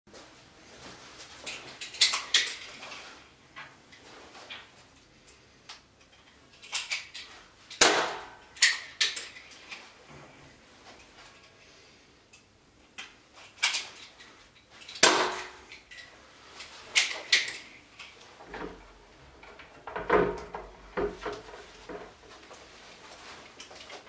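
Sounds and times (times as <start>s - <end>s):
objects knocking and clattering: 17.0s - 24.0s.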